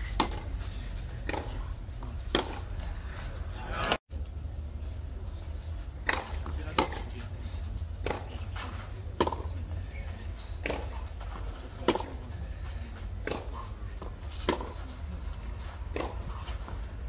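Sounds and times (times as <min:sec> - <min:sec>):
tennis ball hit by rackets: 0:00.0 - 0:00.6, 0:01.2 - 0:02.7, 0:06.0 - 0:07.2, 0:08.0 - 0:09.5, 0:10.6 - 0:12.2, 0:13.2 - 0:14.8, 0:15.9 - 0:16.8.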